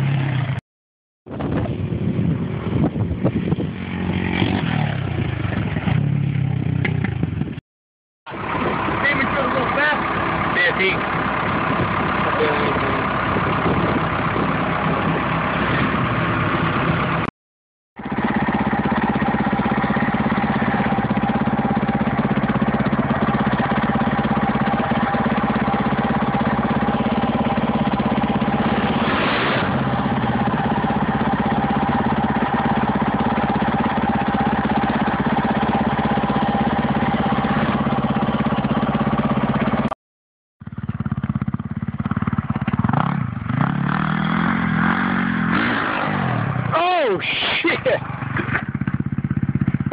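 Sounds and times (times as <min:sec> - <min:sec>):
small engine idling: 0:08.3 - 0:17.3, 0:18.0 - 0:40.0, 0:40.6 - 0:45.6, 0:46.2 - 0:49.9.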